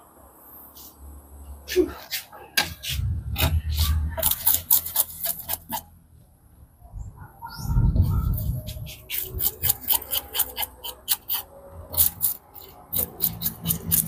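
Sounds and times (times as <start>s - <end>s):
knife scraping fish scales: 2.1s - 5.9s, 8.3s - 14.0s.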